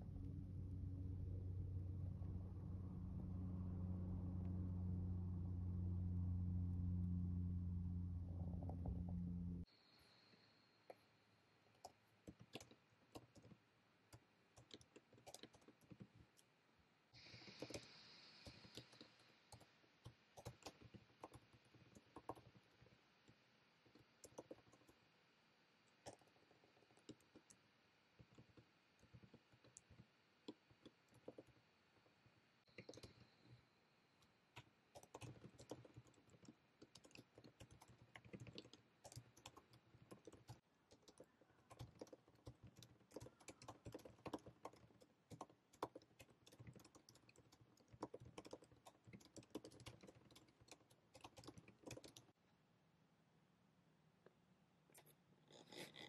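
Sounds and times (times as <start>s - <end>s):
typing on laptop keyboard: 11.8s - 16.5s, 17.4s - 23.0s, 23.9s - 25.0s, 28.2s - 31.6s, 32.7s - 33.6s, 34.5s - 52.4s
soft hiss: 17.1s - 20.1s.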